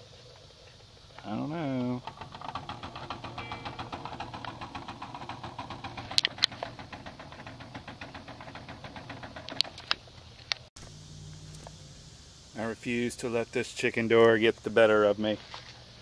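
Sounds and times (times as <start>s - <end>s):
small motor rapid clicking: 1.8s - 10.0s.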